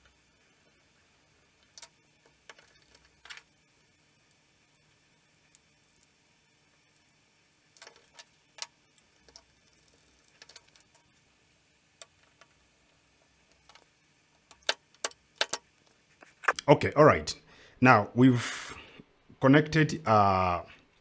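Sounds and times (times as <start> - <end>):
faint clicks and taps: 7.8 - 11.2, 13.2 - 16.7.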